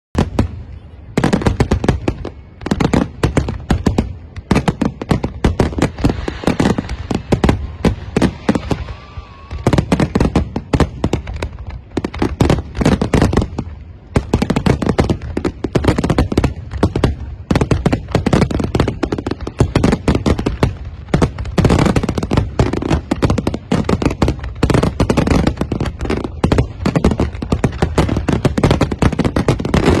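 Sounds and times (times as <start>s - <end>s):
fireworks bursting: 0.2s - 30.0s.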